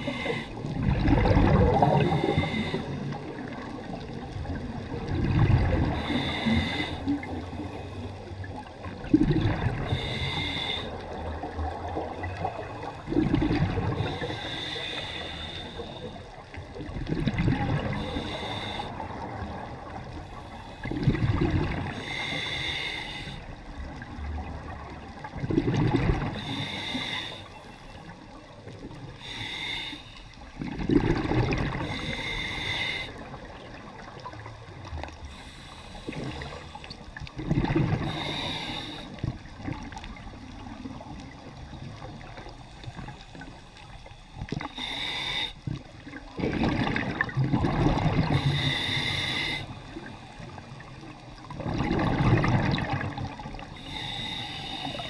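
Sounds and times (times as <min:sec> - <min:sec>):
regulator breathing hiss: 0:00.0 - 0:00.6, 0:02.0 - 0:03.5, 0:05.9 - 0:08.2, 0:09.9 - 0:11.1, 0:14.0 - 0:16.3, 0:17.9 - 0:19.2, 0:21.9 - 0:23.5, 0:26.4 - 0:28.1, 0:29.2 - 0:30.4, 0:31.8 - 0:33.3, 0:35.2 - 0:37.0, 0:38.0 - 0:39.4, 0:42.6 - 0:46.1, 0:48.3 - 0:51.5, 0:53.6 - 0:55.0
exhaled bubbles rumbling: 0:00.0 - 0:14.5, 0:15.8 - 0:22.0, 0:23.6 - 0:26.6, 0:30.4 - 0:32.5, 0:33.1 - 0:44.8, 0:45.6 - 0:49.0, 0:49.8 - 0:53.8.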